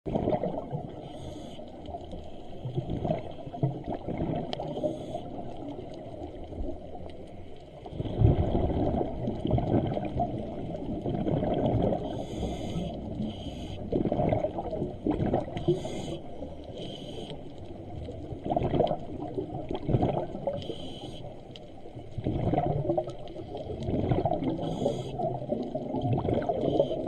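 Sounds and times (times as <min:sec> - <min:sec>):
exhaled air bubbling: 0:00.1 - 0:27.0
regulator inhale hisses: 0:01.0 - 0:02.6, 0:04.7 - 0:05.4, 0:12.0 - 0:13.9, 0:15.6 - 0:17.5, 0:20.6 - 0:21.4, 0:24.6 - 0:25.3.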